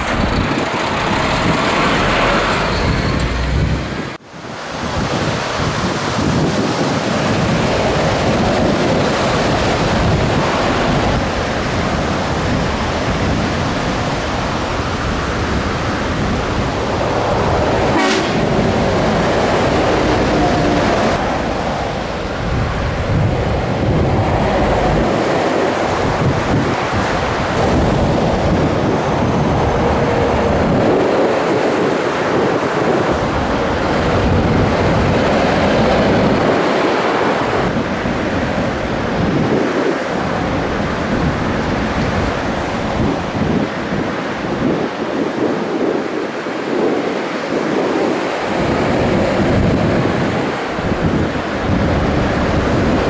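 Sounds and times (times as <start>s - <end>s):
truck engine rumble: 0.0s - 4.2s, 7.2s - 39.6s
road noise: 0.0s - 53.0s.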